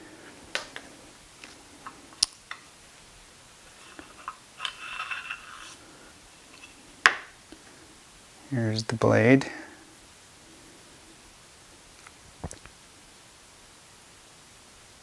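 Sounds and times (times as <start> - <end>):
metal scraping rub on wood: 3.6 - 6.9.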